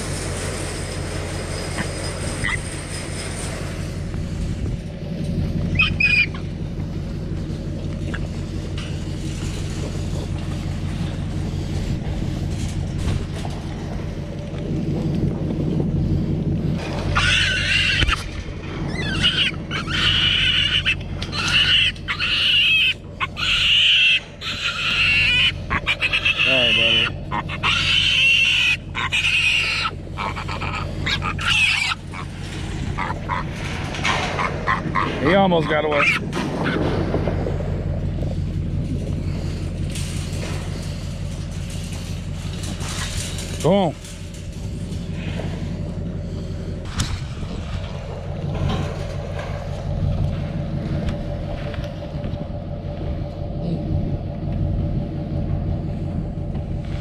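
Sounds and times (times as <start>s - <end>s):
wire trap panels rattling: 0.0s - 15.8s, 16.6s - 52.2s
low steady hum: 0.0s - 57.0s
truck engine idling: 0.0s - 57.0s
piglets squealing: 2.4s - 2.7s, 5.7s - 6.4s, 17.1s - 33.5s, 34.1s - 36.8s.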